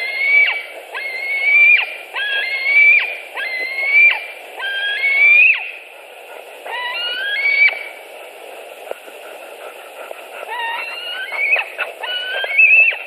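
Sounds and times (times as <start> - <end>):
young eagle whining calls: 0.0 - 5.8, 6.7 - 8.0, 10.4 - 13.0.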